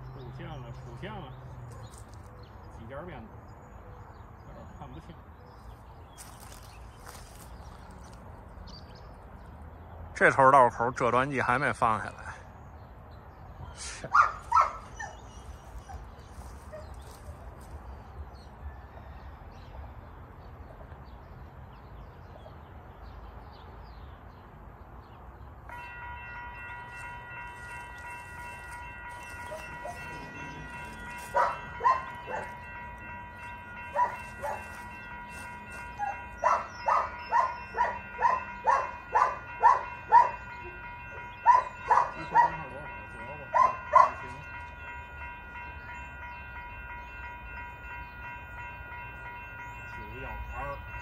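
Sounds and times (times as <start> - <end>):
railroad crossing bell ringing: 10.2 - 12.6, 25.6 - 51.0.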